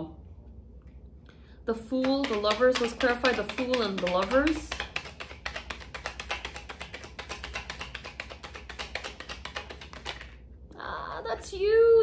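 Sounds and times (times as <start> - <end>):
cards being shuffled: 2.0 - 10.4.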